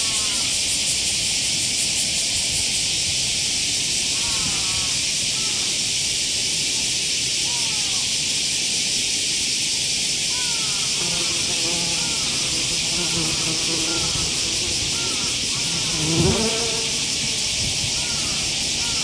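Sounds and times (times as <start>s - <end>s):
steady high hiss: 0.0s - 19.0s
wasp buzzing: 11.0s - 17.5s.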